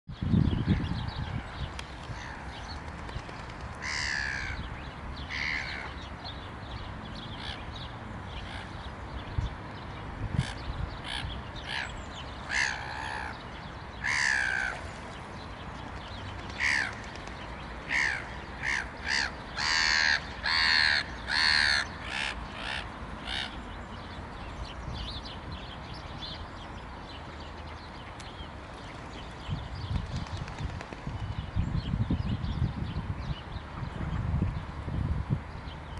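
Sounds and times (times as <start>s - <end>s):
crows cawing: 3.8s - 4.6s, 14.0s - 14.8s, 17.9s - 23.6s.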